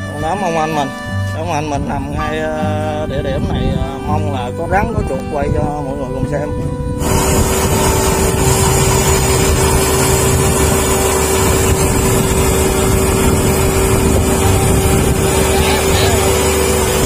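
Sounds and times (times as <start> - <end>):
constant machine whine: 0.0 - 17.0
combine harvester engine running: 6.8 - 17.0.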